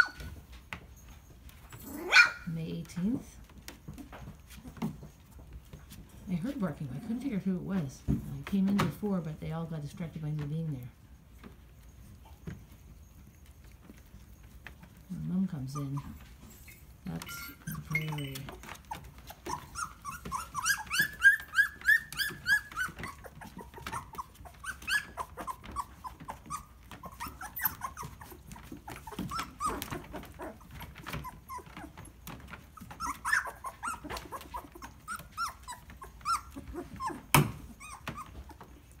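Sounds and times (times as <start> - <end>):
puppies yipping and whimpering: 0.0 - 0.5, 12.1 - 39.0.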